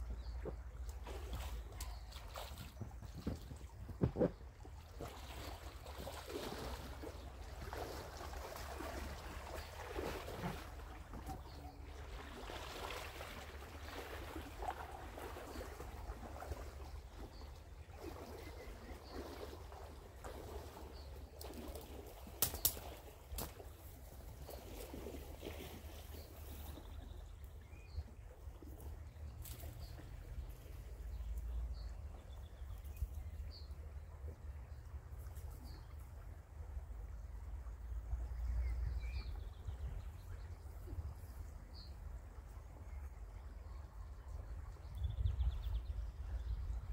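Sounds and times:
stream trickling: 0.0s - 46.9s
wind rumble on microphone: 26.2s - 46.9s
wind rumbling on microphone: 42.6s - 46.9s.

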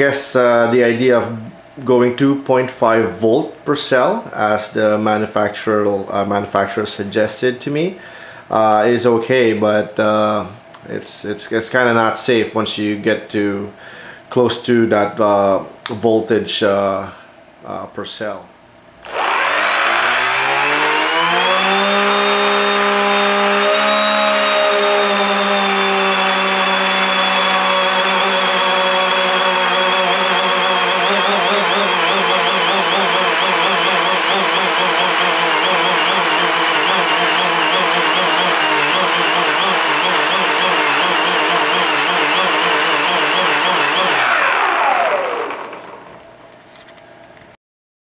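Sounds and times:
electric motor and propeller whine: 19.0s - 46.3s.

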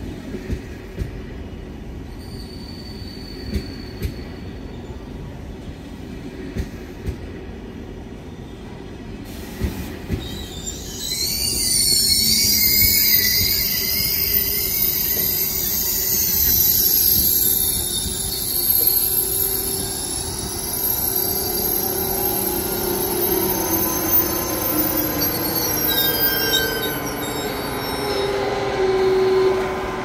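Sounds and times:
low train hum: 0.0s - 30.0s
train brakes squealing: 2.0s - 5.7s, 8.5s - 30.0s.

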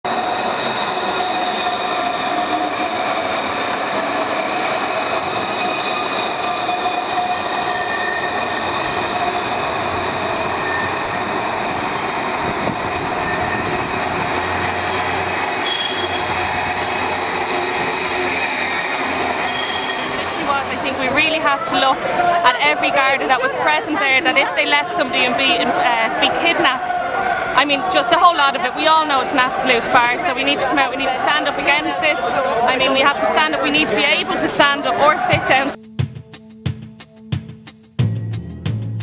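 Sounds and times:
wheels squealing on track: 0.1s - 11.2s, 13.0s - 22.4s
tram running on rails: 0.1s - 35.8s.

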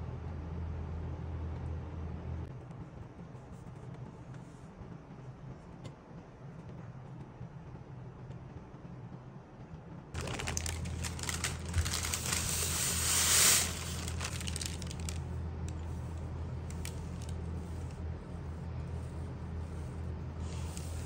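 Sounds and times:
dough crumbs pouring into dish: 10.2s - 15.2s.

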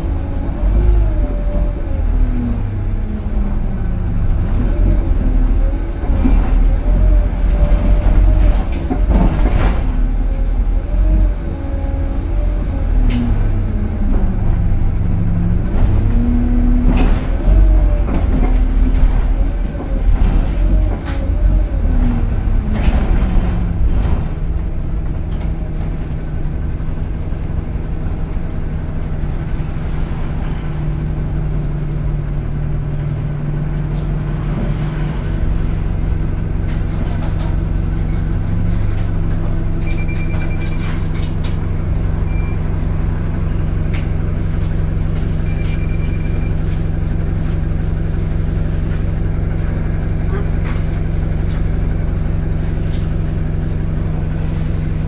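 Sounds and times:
bus engine and transmission whine: 0.0s - 55.0s.

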